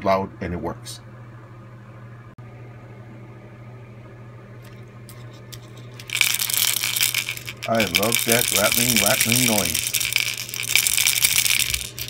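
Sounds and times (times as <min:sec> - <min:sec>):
low steady hum: 0:00.0 - 0:12.0
fishing lure rattling: 0:05.1 - 0:12.0.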